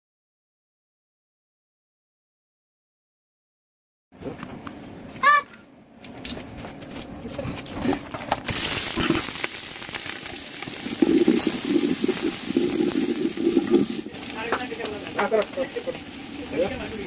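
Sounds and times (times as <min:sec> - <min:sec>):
onions sizzling in hot oil: 0:08.4 - 0:17.0
spatula scraping a pot: 0:10.8 - 0:14.1.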